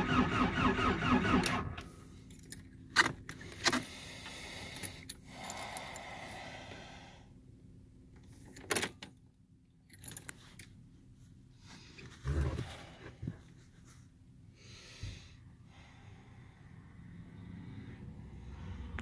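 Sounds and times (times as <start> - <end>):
keys jangling: 9.9 - 10.7.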